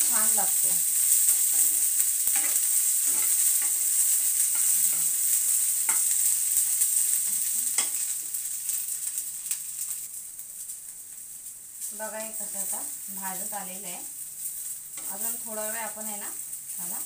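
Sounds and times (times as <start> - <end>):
beans sizzling in oil: 0.0 - 17.0
spoon knocking and scraping pan: 1.4 - 5.1, 5.9 - 6.3, 7.3 - 8.0.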